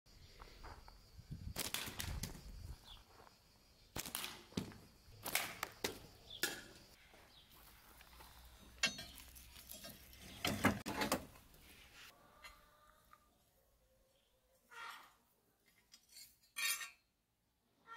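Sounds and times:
scrap metal and boards clattering: 0:08.8 - 0:11.4.

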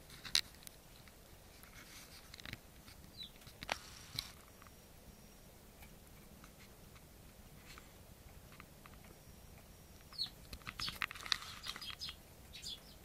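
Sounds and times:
sparrow chirp: 0:03.1 - 0:03.4, 0:09.1 - 0:13.0.

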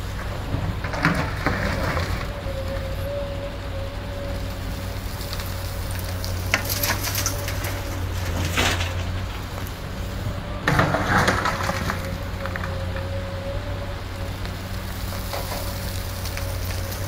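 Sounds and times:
soil pouring into truck bed: 0:00.0 - 0:02.5, 0:04.4 - 0:12.9, 0:14.2 - 0:17.0
bucket scraping soil and stones: 0:00.0 - 0:02.8, 0:04.4 - 0:13.0, 0:14.8 - 0:17.0
diesel engine running: 0:00.0 - 0:17.0.

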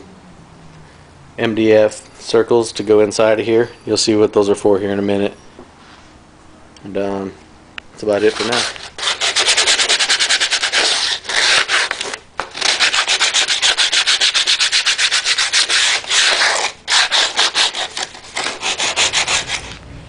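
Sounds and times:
sandpaper rubbing: 0:08.0 - 0:19.8.

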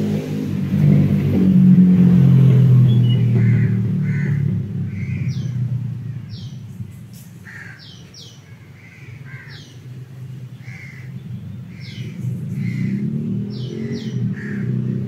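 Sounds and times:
low rumble: 0:00.9 - 0:07.7
birds chirping: 0:02.7 - 0:15.0.

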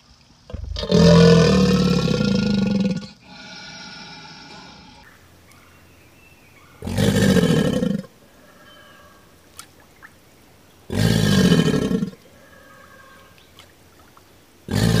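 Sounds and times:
alligator bellowing: 0:00.5 - 0:05.8, 0:06.6 - 0:09.3, 0:10.9 - 0:13.4, 0:14.7 - 0:15.0.

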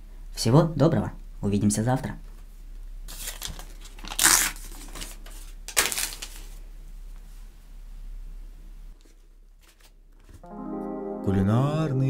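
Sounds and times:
paper tearing: 0:03.1 - 0:06.5.

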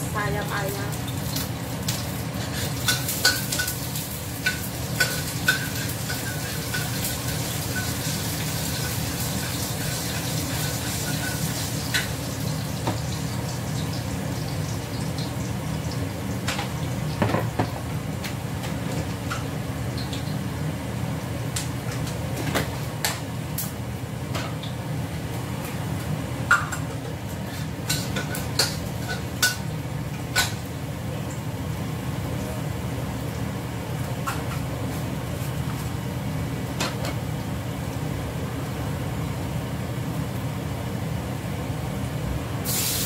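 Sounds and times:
food sizzling in a wok: 0:00.0 - 0:17.2, 0:27.2 - 0:30.9, 0:42.6 - 0:43.0.

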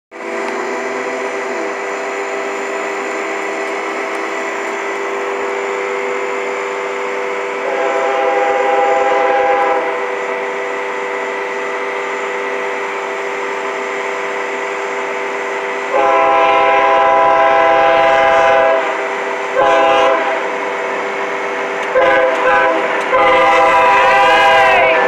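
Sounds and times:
distant locomotive air horn: 0:05.5 - 0:13.1, 0:15.4 - 0:20.7, 0:21.9 - 0:25.0.

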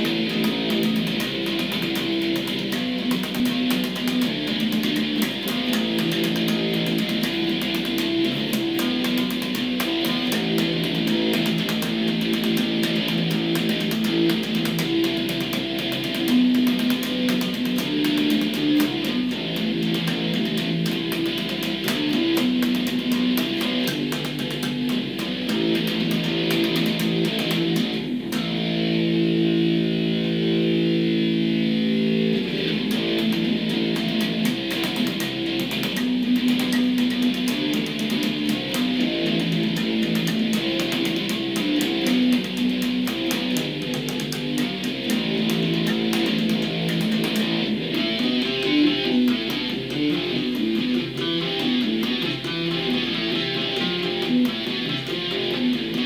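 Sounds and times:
electric bass guitar riff: 0:00.0 - 0:56.0.

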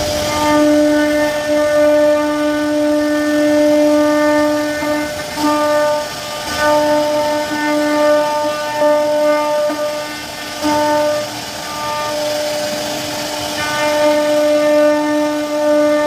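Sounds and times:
router spindle whine: 0:00.0 - 0:16.0.

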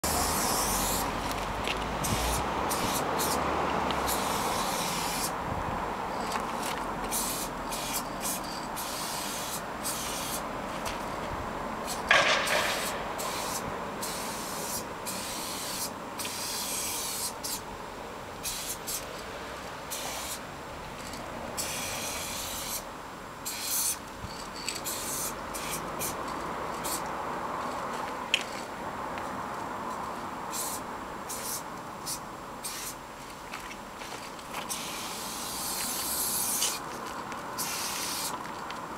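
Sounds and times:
spray paint can hissing: 0:00.0 - 0:01.1, 0:02.0 - 0:03.4, 0:04.0 - 0:05.4, 0:07.1 - 0:10.5, 0:11.8 - 0:17.6, 0:18.4 - 0:19.0, 0:19.9 - 0:20.4, 0:21.6 - 0:22.8, 0:23.4 - 0:24.0, 0:24.8 - 0:26.2, 0:30.5 - 0:33.0, 0:34.6 - 0:36.8, 0:37.6 - 0:38.4.

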